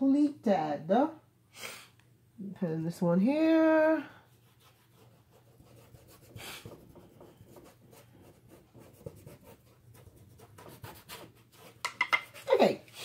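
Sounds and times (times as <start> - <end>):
paintbrush stroking canvas: 4.2 - 13.0.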